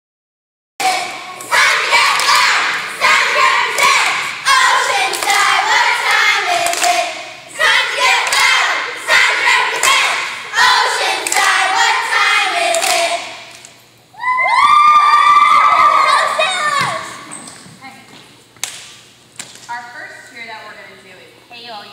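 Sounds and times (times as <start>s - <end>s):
girls shouting a cheer: 0.8s - 6.1s, 14.2s - 17.3s
rhythmic claps and stomps: 0.8s - 13.8s, 18.6s - 19.7s.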